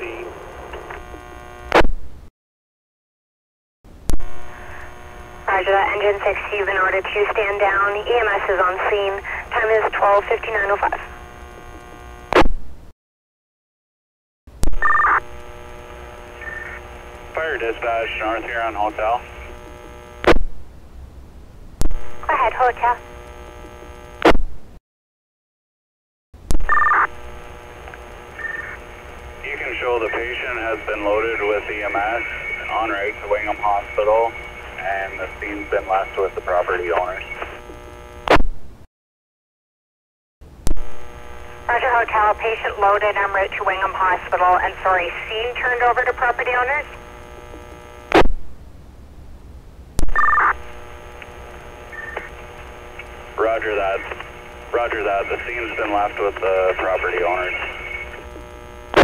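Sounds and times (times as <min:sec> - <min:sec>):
radio static hiss: 0:00.0 - 0:01.9, 0:04.0 - 0:12.5, 0:14.6 - 0:20.7, 0:21.8 - 0:24.5, 0:26.5 - 0:38.5, 0:40.5 - 0:48.8, 0:49.9 - 0:59.0
radio click: 0:00.7 - 0:01.9, 0:08.6 - 0:12.5, 0:36.4 - 0:38.5, 0:46.0 - 0:48.4, 0:50.0 - 0:59.0
radio squelch burst: 0:04.1 - 0:11.2, 0:28.4 - 0:37.6, 0:50.0 - 0:59.0
two-tone radio beep: 0:14.8 - 0:15.2, 0:26.7 - 0:27.1, 0:50.1 - 0:50.6.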